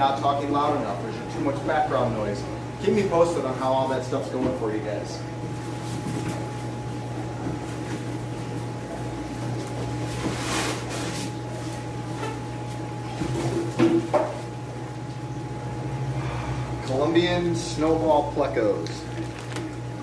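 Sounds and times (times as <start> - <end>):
foam lid rustling: 19.0 - 19.8.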